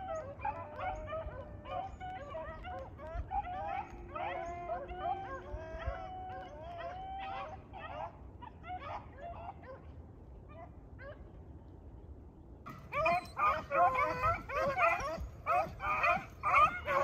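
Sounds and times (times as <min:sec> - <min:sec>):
beagles baying: 0:00.0 - 0:08.1, 0:12.7 - 0:17.0.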